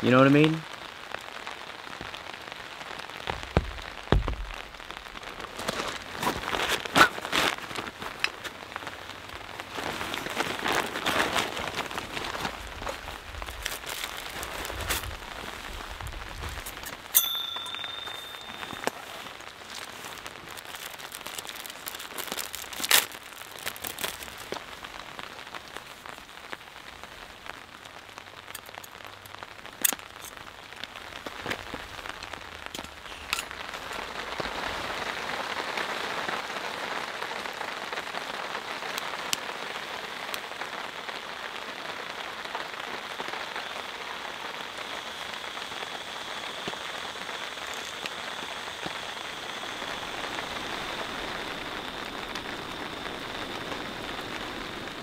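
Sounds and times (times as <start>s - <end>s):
rain falling on a tarp: 0.0s - 55.0s
clicks and knocks of handling lantern: 5.6s - 8.6s, 32.7s - 34.0s.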